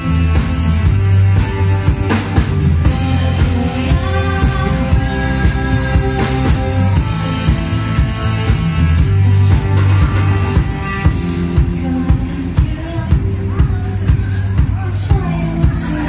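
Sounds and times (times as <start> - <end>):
live band playing upbeat song: 0.0 - 16.0
woman singing: 2.8 - 8.3, 10.0 - 16.0.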